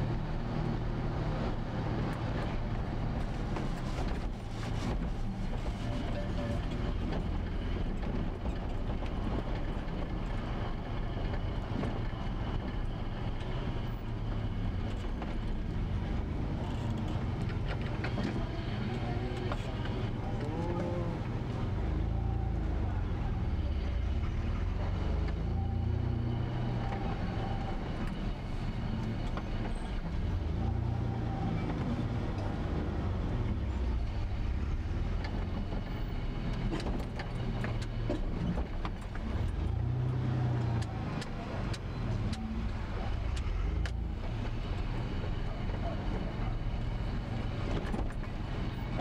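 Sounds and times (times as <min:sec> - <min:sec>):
car engine and road noise: 0:00.0 - 0:49.0.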